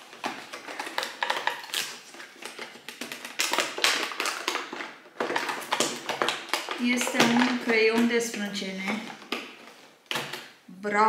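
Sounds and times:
cardboard tearing: 0.0 - 7.5
cardboard clicks and crackles: 0.0 - 10.6.

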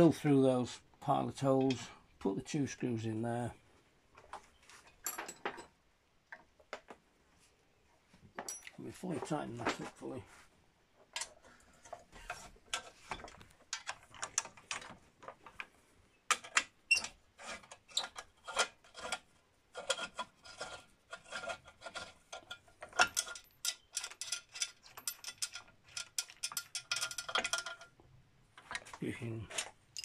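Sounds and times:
metallic clicks and rattles: 11.0 - 15.7, 16.3 - 28.0, 28.6 - 30.0.

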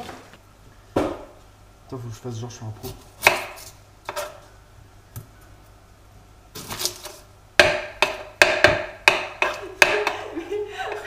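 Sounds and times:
knife chopping on wooden board: 3.2 - 4.4, 7.6 - 10.2.

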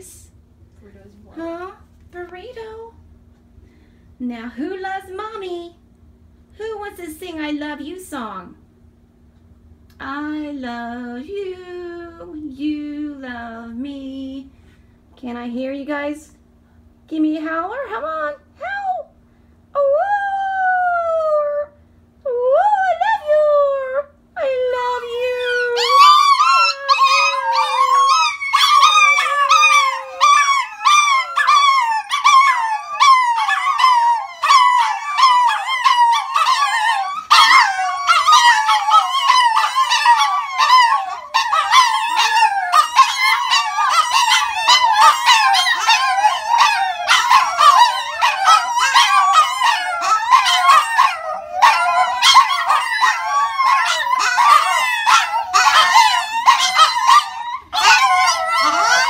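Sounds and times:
dogs howling: 24.9 - 59.0.

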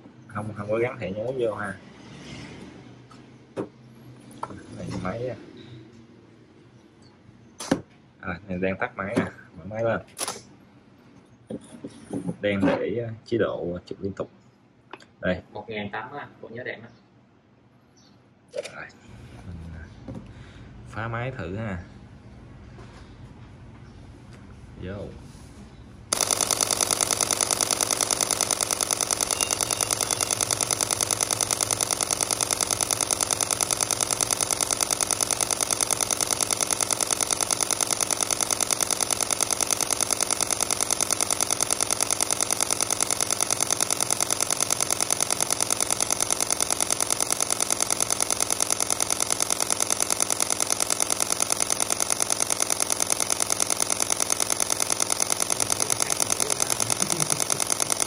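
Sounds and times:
rapid camera shutter clicks: 26.1 - 58.0.

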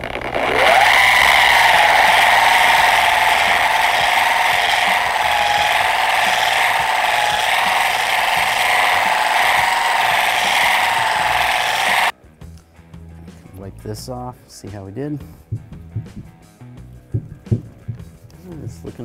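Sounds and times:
rotary buffer motor whine: 0.0 - 12.1.

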